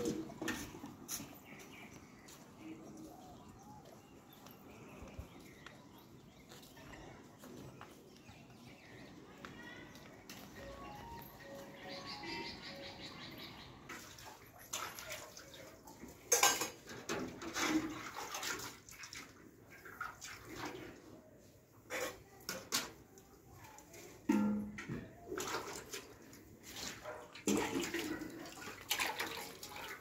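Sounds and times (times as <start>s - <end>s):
metal pots and utensils clinking: 0.0s - 1.5s, 13.9s - 18.6s, 21.8s - 23.0s, 24.3s - 25.1s, 26.8s - 30.0s
water sloshing: 17.2s - 21.0s, 25.3s - 30.0s.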